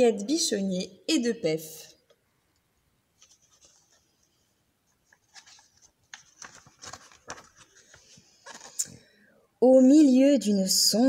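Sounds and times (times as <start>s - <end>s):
book pages rustling: 3.2s - 9.0s.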